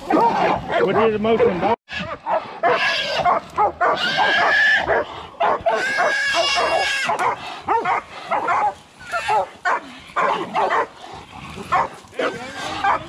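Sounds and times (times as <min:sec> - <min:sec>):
dogs barking and yipping: 0:00.0 - 0:13.0
hog squealing: 0:01.9 - 0:05.0, 0:05.7 - 0:07.2.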